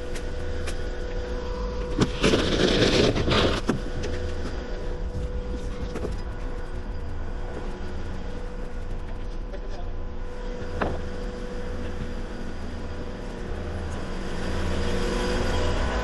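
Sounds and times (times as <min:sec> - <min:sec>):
engine running: 0:00.0 - 0:16.0.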